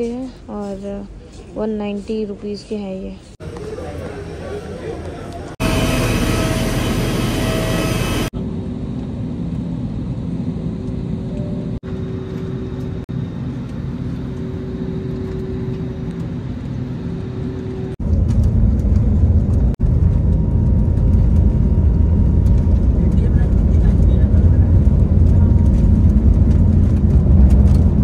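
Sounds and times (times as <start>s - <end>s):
airliner engine rumble: 3.2s - 28.0s
deep loud rumble: 14.6s - 28.0s.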